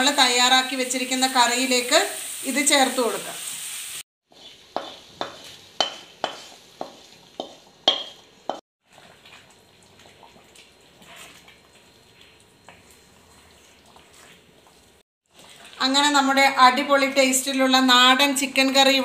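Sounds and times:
stirring curry in pot: 4.2s - 16.0s
spoon clanking on metal pan: 4.4s - 8.6s.

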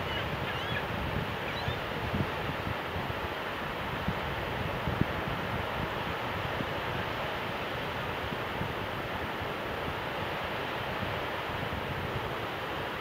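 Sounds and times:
wind buffeting microphone: 0.0s - 7.0s
wind over shallow water: 0.0s - 13.0s.

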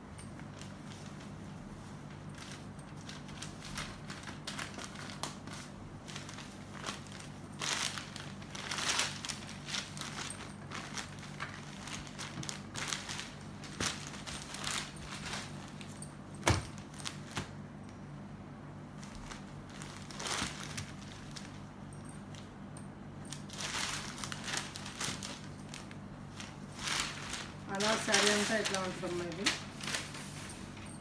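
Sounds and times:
low steady hum: 0.0s - 31.0s
cloth rustling: 0.4s - 16.1s, 23.3s - 31.0s.

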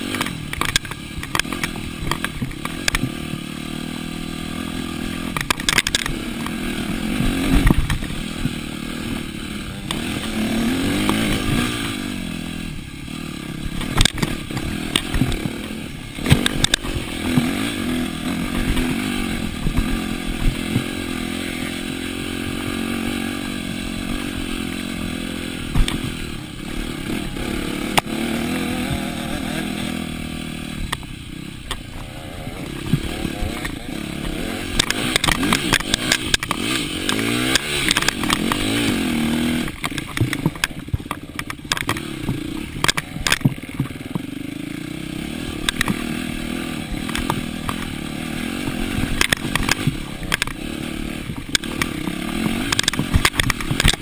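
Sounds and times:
bike knocks and rattles: 0.0s - 3.5s, 4.8s - 11.7s, 13.6s - 21.4s, 25.5s - 27.2s, 32.7s - 44.6s, 45.6s - 54.0s
dirt bike engine revving: 0.0s - 54.0s.

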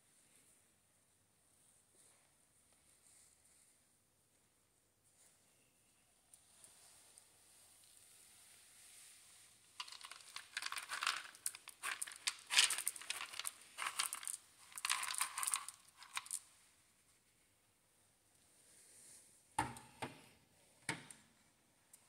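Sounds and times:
kibble rattling in plastic scoop: 9.8s - 16.4s.

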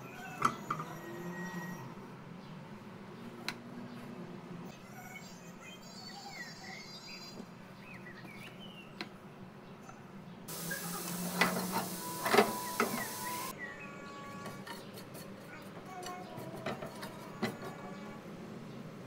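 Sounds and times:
greens sizzling in oil: 10.5s - 13.5s.

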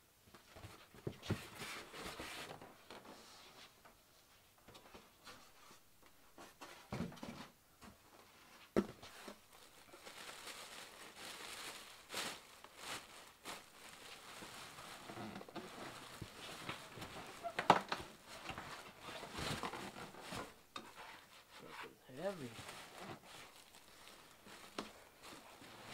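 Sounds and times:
cardboard rustling: 8.6s - 25.9s
plastic wrapping crinkling: 9.0s - 20.6s, 22.2s - 25.9s.

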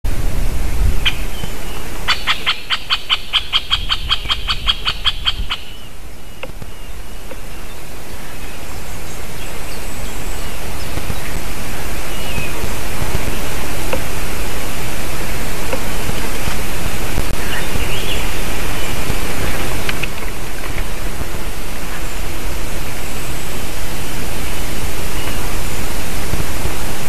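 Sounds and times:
wind noise hiss: 0.1s - 27.0s
woodpecker calling sharp notes: 1.0s - 8.6s.

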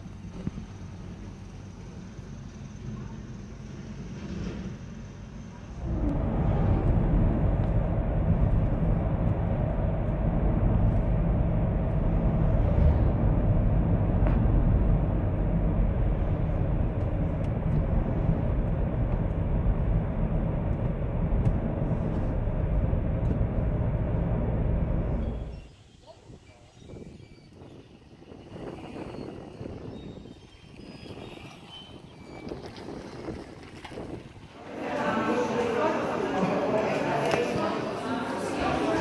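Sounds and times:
car engine and road rumble: 0.0s - 25.7s.

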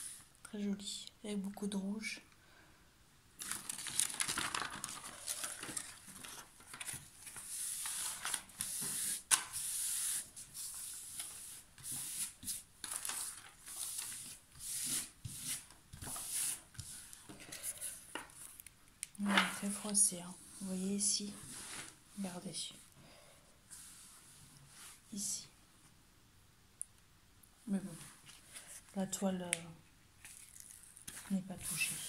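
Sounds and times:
canvas and paper rustling: 3.4s - 22.3s, 30.2s - 32.0s.

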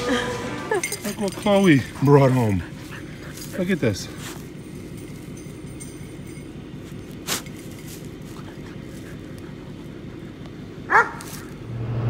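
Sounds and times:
dog yelping: 10.9s - 11.5s.

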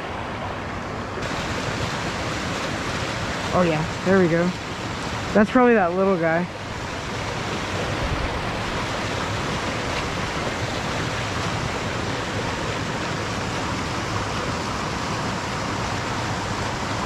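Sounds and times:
waterfall rushing over rocks: 0.0s - 17.0s.

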